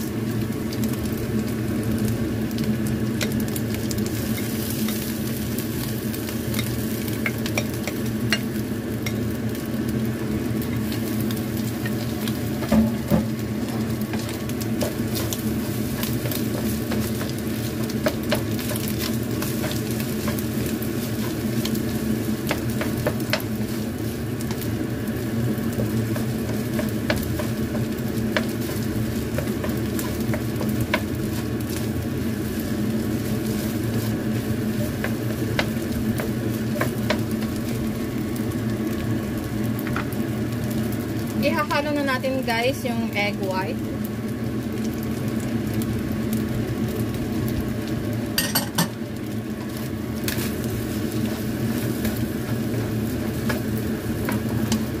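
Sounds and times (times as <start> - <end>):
rice sizzling in wok: 0.0 - 55.0
wooden spatula scraping and tapping: 11.8 - 21.8, 22.4 - 23.8, 25.7 - 31.9, 33.3 - 37.4.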